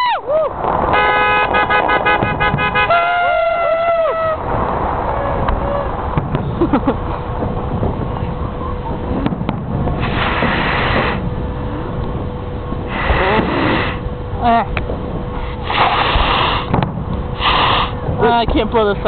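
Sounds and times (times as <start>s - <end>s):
low rumble: 0.0s - 19.0s
fireworks pops and bangs: 0.6s - 3.0s, 4.5s - 11.4s, 14.8s - 18.6s
fireworks hiss: 9.8s - 11.4s, 12.9s - 14.1s, 15.4s - 18.2s.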